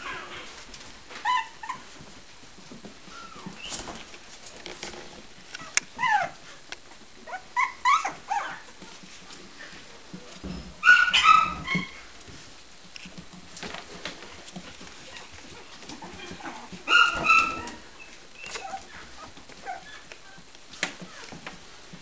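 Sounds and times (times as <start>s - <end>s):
puppies yipping: 0.0s - 2.0s, 5.6s - 6.6s, 7.2s - 9.0s, 10.8s - 12.1s, 14.8s - 20.4s.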